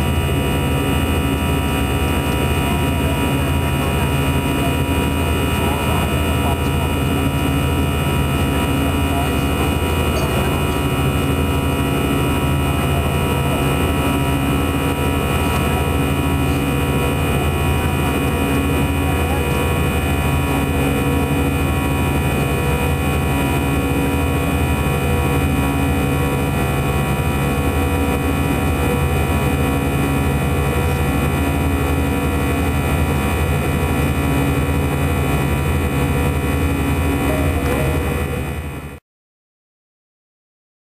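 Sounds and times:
steady tones: 0:00.0 - 0:25.4
airplane cabin drone: 0:00.0 - 0:39.0.

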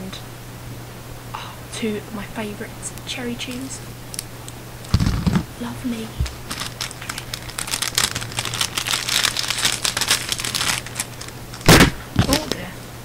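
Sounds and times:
plastic packaging crinkling: 0:04.8 - 0:12.6.

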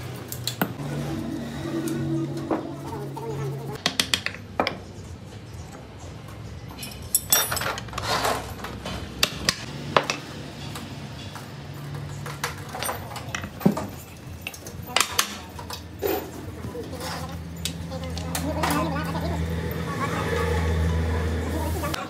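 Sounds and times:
metal parts clinking and knocking: 0:06.7 - 0:16.4.

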